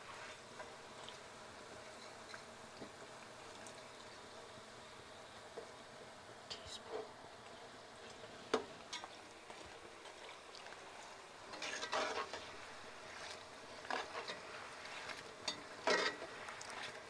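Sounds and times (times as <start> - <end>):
food deep-frying in oil: 0.0 - 17.0
metal spatula scraping pot: 11.5 - 12.5, 13.2 - 17.0.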